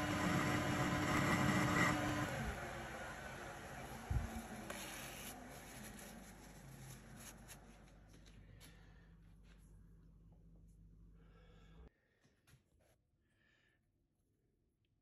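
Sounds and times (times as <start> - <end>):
metal lathe spinning down: 0.0 - 4.7.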